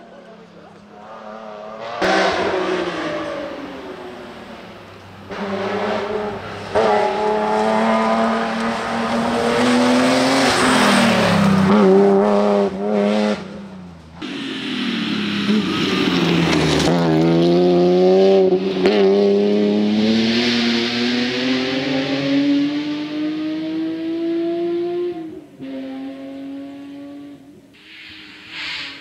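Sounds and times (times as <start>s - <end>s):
rally car engine revving: 1.0s - 29.0s.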